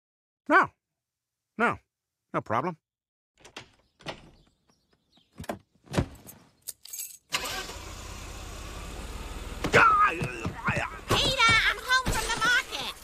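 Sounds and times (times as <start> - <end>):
car engine starting and running: 7.3 - 11.9.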